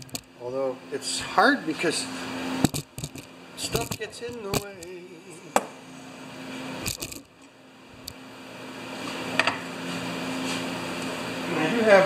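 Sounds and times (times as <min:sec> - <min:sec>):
steady low hum: 0:00.0 - 0:12.0
tools knocking and clicking: 0:02.6 - 0:04.9.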